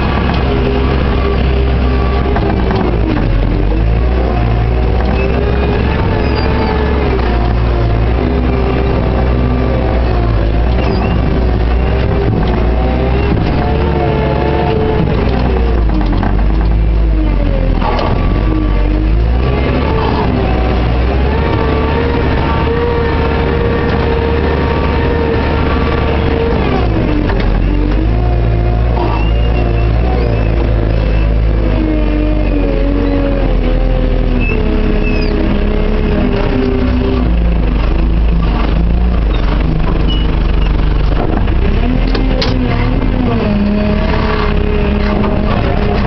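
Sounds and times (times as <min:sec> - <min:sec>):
diesel engine revving: 0:00.0 - 0:46.0.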